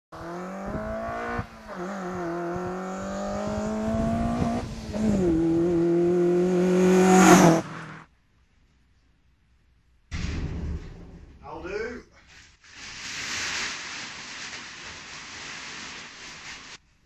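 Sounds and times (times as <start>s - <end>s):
car engine at high revs: 0.2s - 8.0s.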